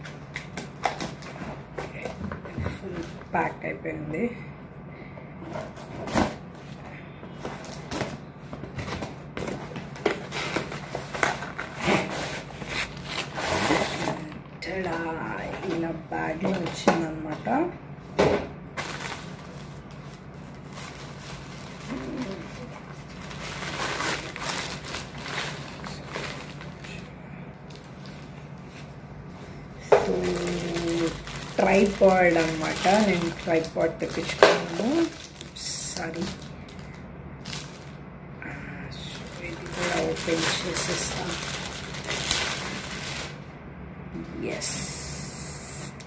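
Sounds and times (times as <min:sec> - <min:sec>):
low steady hum: 0:00.0 - 0:46.0
bag and plastic wrapping rustling: 0:05.4 - 0:17.7, 0:18.8 - 0:38.0, 0:38.9 - 0:43.5.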